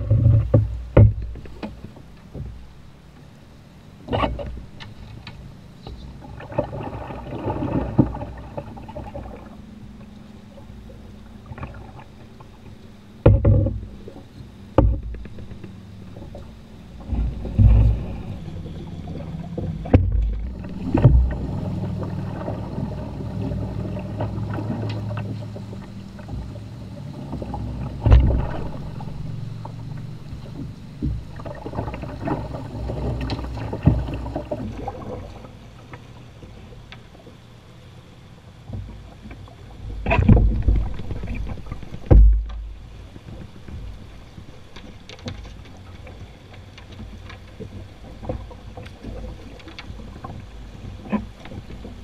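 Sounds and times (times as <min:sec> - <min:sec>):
pole knocking against canoe: 0:00.0 - 0:02.6, 0:13.2 - 0:13.9, 0:14.8 - 0:15.8, 0:19.6 - 0:21.4, 0:27.4 - 0:29.1, 0:40.1 - 0:42.7
water rushing along hull: 0:00.0 - 0:52.0.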